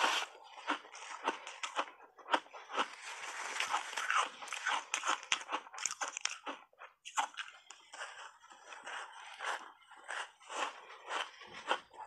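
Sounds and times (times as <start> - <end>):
crunching and chewing ice: 0.0 - 12.0
ice cracking between teeth: 3.6 - 7.8.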